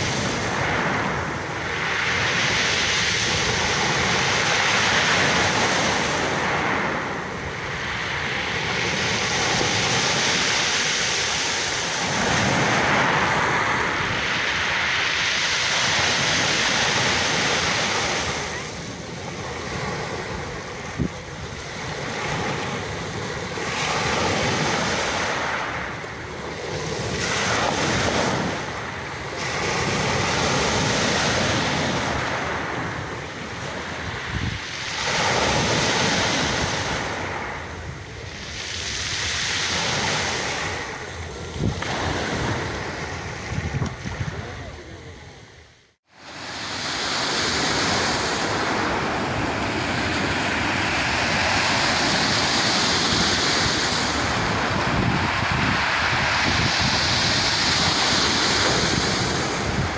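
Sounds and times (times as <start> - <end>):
surf breaking on pebble beach: 0.0 - 44.8, 46.2 - 59.9
wind: 0.0 - 59.9.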